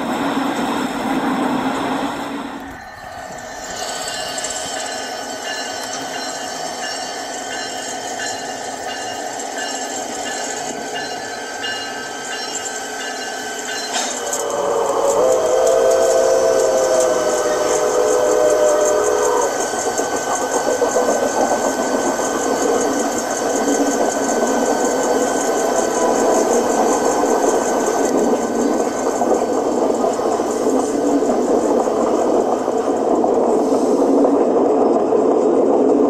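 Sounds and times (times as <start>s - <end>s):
model train running: 0.0s - 36.0s
wheels rolling on track: 0.0s - 36.0s
steam locomotive whistle: 13.8s - 20.3s.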